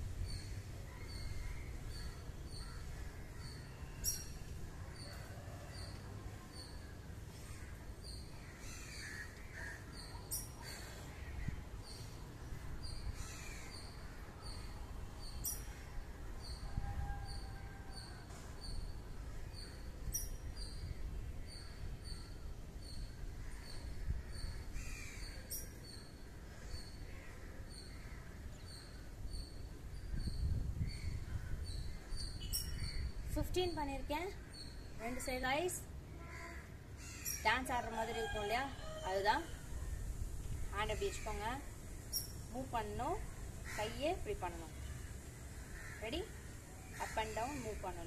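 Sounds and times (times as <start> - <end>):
crows cawing: 8.4 - 9.9, 13.2 - 13.7, 23.4 - 25.3, 36.2 - 39.2, 43.6 - 44.1, 45.4 - 47.8.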